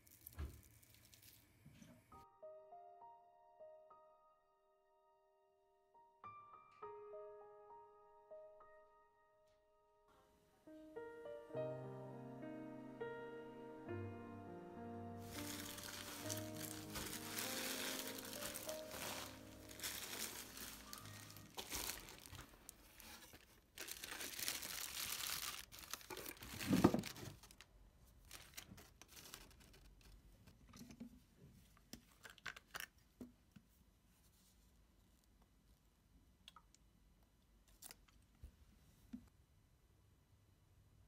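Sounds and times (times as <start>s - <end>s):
plastic bag crinkling: 0.0s - 1.6s, 15.2s - 30.2s.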